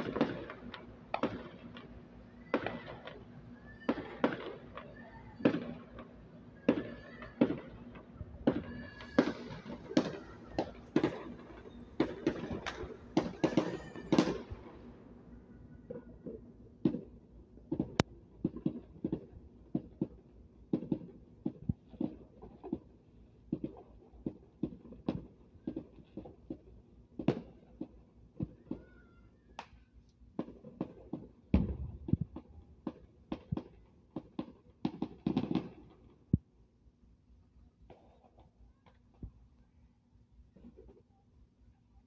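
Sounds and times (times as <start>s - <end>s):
distant fireworks popping and crackling: 0.0s - 15.0s, 15.7s - 36.5s, 37.8s - 39.4s, 40.5s - 41.1s
deep firework thump: 31.6s - 32.3s.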